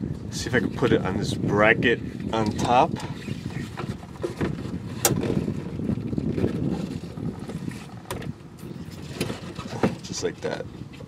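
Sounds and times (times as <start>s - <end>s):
rubbing and rustling of wiring: 2.3s - 11.0s.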